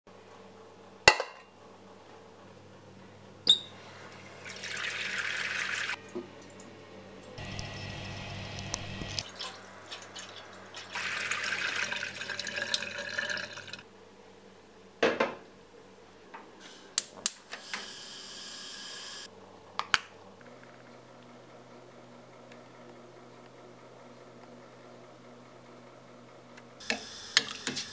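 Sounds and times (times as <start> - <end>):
tap water running into saucepan: 4.4 - 6.6, 8.4 - 13.8
gas burner hiss: 7.4 - 9.2, 26.8 - 27.9.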